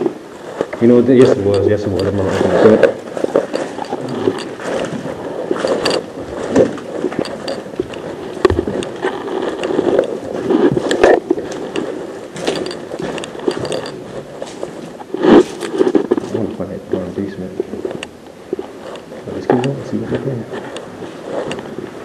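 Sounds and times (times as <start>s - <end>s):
clothing and gear rustling: 0.0s - 22.0s
footsteps and scuffs: 0.6s - 17.9s.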